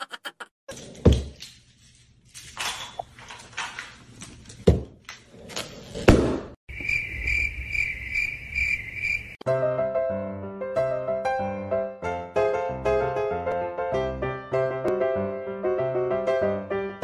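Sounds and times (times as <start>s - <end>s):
cricket chirp sound effect: 6.7s - 9.4s
piano music: 9.4s - 17.0s.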